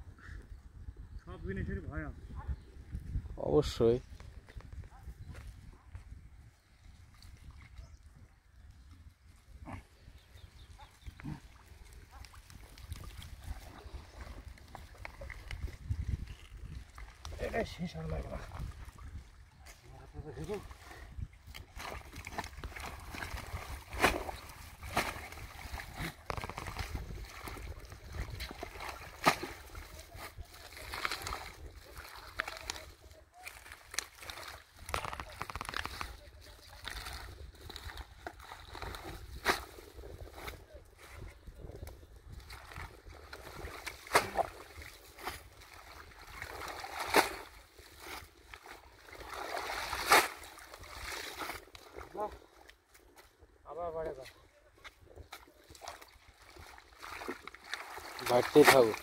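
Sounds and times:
water sloshing and splashing: 0:10.0 - 0:41.2, 0:41.8 - 0:53.4, 0:54.2 - 0:59.0
sharp splashes: 0:21.5 - 0:29.9, 0:43.4 - 0:48.2, 0:49.0 - 0:51.6.

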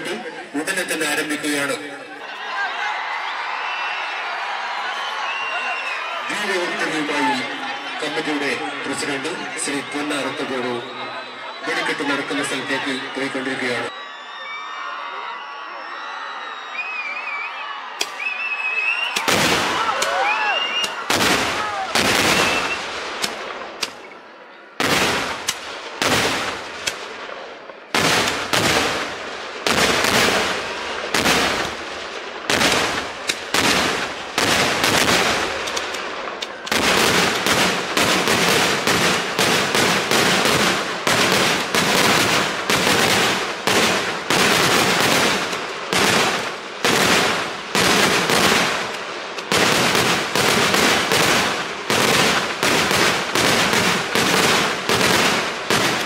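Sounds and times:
fireworks banging: 0:18.0 - 0:24.2, 0:24.8 - 0:56.0.

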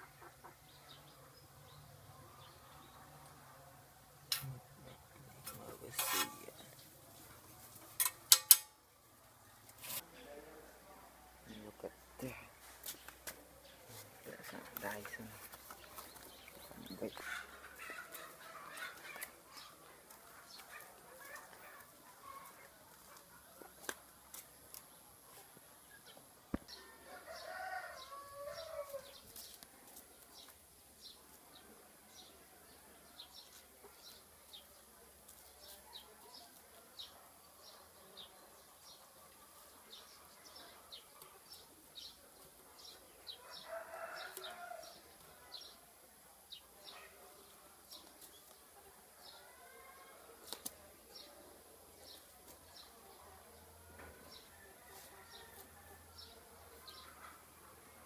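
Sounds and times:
rooster crowing: 0:26.9 - 0:29.1.

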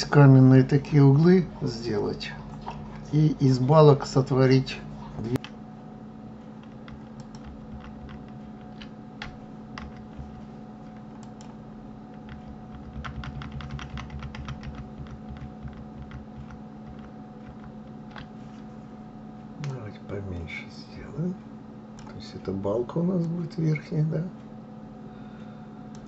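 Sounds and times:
low hum: 0:00.0 - 0:26.0
keyboard keys clicking: 0:06.6 - 0:18.3.

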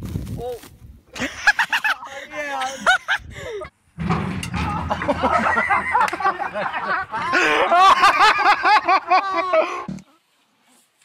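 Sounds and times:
hearty cackling laughter: 0:01.2 - 0:03.7, 0:04.6 - 0:09.9.

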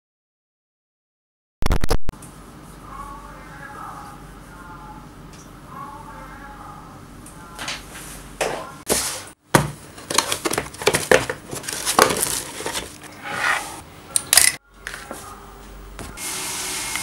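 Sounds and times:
cardboard crinkling rustles: 0:10.0 - 0:13.1.

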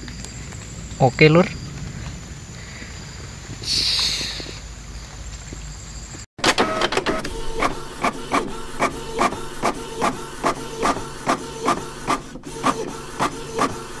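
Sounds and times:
rhythmic mechanical clatter: 0:06.4 - 0:14.0
steady hum: 0:06.4 - 0:14.0.

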